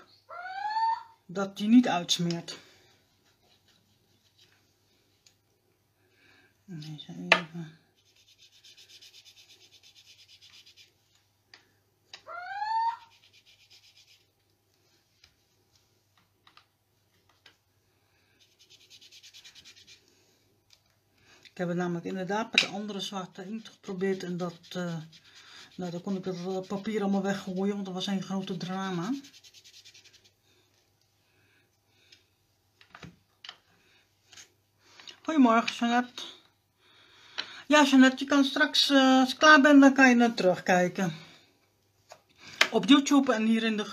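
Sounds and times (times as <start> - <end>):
ink dauber scrubbing paper: 8.0 - 11.1, 13.0 - 14.3, 18.4 - 20.1, 23.4 - 30.4.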